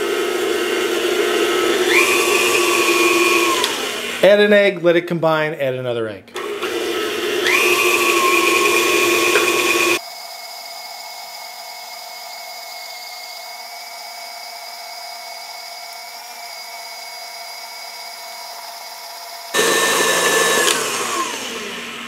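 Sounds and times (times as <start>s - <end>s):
stand mixer motor whine: 0.0s - 4.2s, 6.4s - 22.0s.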